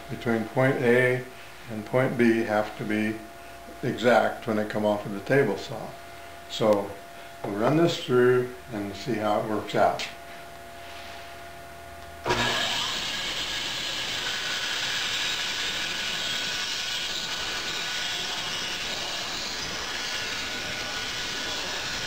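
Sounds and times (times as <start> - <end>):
bandsaw running: 12.2 - 22.0.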